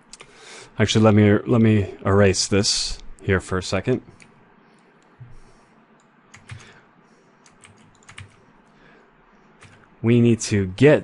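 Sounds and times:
low room hiss: 0.0s - 11.0s
computer input clicks and taps: 6.0s - 6.8s, 7.5s - 8.4s.

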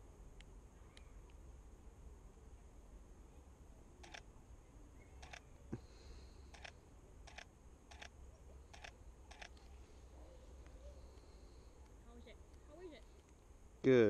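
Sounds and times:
camera control clicks: 4.0s - 4.2s, 5.2s - 5.4s, 7.3s - 8.1s, 8.8s - 9.6s.

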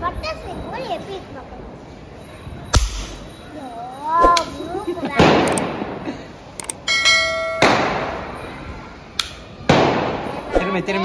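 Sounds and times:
toy cap gun pops with echo: 2.8s - 3.2s.

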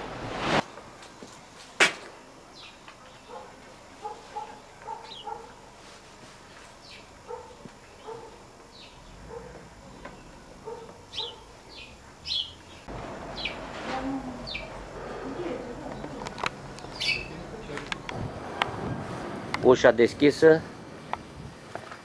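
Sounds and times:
steady rushing noise: 0.0s - 0.8s, 17.9s - 21.6s
dog barking faintly: 3.3s - 5.6s, 7.2s - 8.4s, 9.3s - 9.7s, 10.6s - 11.6s
high falling bird chirps: 16.8s - 17.4s.

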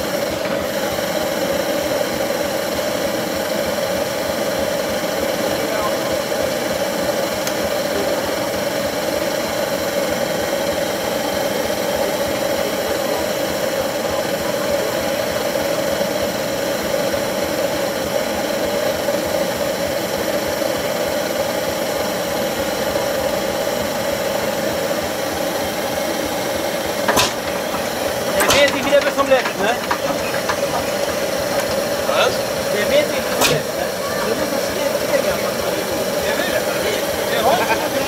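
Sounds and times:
tractor engine running: 0.0s - 38.0s
sharp knock: 27.1s - 27.6s, 33.4s - 33.7s.

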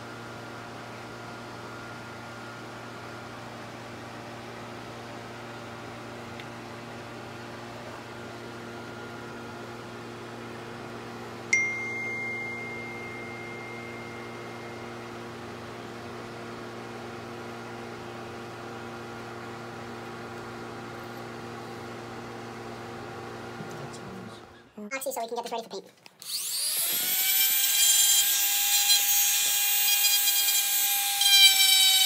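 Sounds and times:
metallic ping: 11.5s - 15.1s.

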